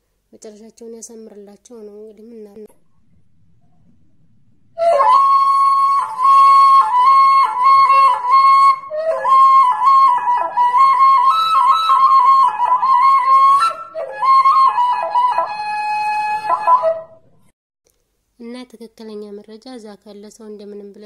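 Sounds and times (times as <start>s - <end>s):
solo flute melody: 4.7s - 17.2s.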